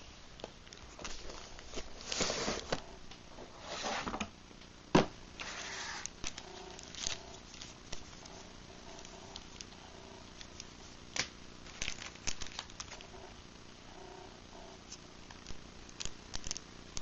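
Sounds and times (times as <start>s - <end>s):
cardboard and paper rustling: 0.8s - 2.9s, 5.4s - 9.7s, 10.4s - 13.2s.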